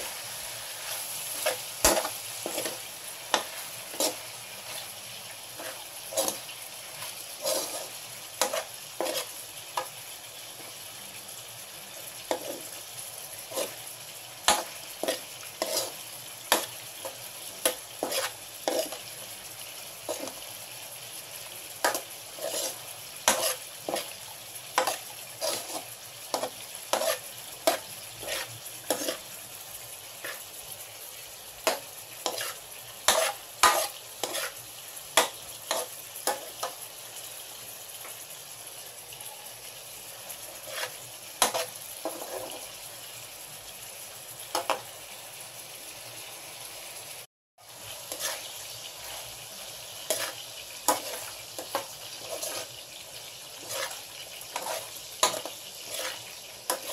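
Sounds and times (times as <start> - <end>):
metal spatula scraping pan: 0.0 - 4.9, 5.6 - 9.9, 12.2 - 12.8, 13.4 - 13.8, 14.5 - 19.2, 20.1 - 20.4, 21.8 - 24.2, 24.8 - 29.4, 30.2 - 30.4, 31.6 - 36.8, 40.5 - 42.7, 48.1 - 49.4, 50.0 - 56.9
shrimp sizzling in oil: 0.0 - 56.9.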